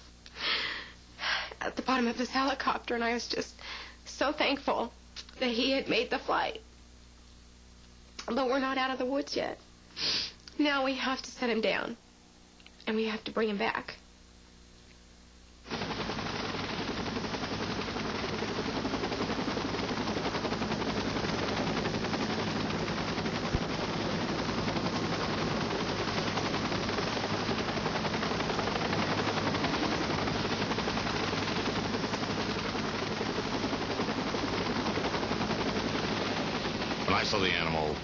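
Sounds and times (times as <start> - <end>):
helicopter rotor blades chopping: 1.7 - 3.2, 15.7 - 38.0.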